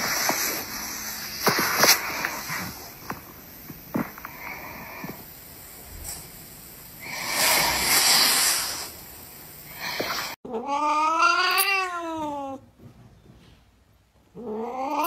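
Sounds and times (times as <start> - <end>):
loud rushing hiss: 0.0 - 10.4
cat meowing: 10.5 - 12.6, 14.4 - 15.0.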